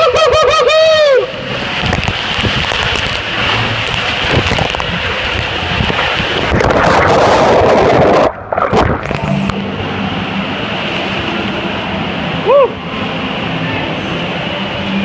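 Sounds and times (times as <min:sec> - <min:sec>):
person yelling: 0:00.0 - 0:01.3
body sliding down water slide: 0:00.0 - 0:09.6
rushing water: 0:00.0 - 0:15.0
water splashing: 0:00.0 - 0:15.0.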